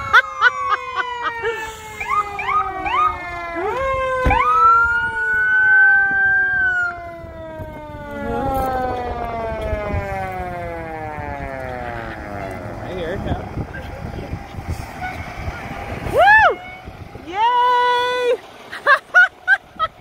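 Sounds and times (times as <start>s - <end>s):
electronic siren yelp and wail: 0.0s - 12.7s, 16.0s - 18.1s
falling siren tone: 0.0s - 14.0s.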